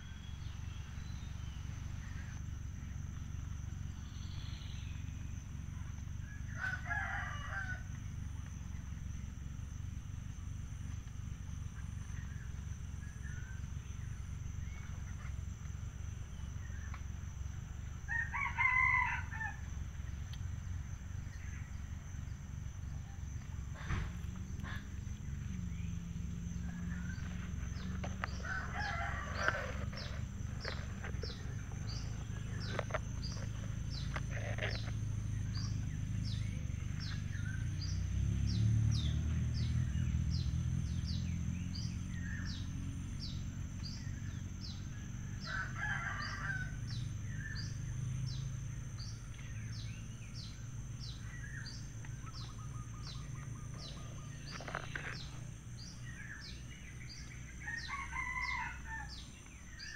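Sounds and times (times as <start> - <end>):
high insect drone: 0.0 - 59.9
rooster crowing: 6.4 - 8.0, 18.0 - 19.8, 28.0 - 32.6, 45.4 - 47.1, 57.6 - 59.3.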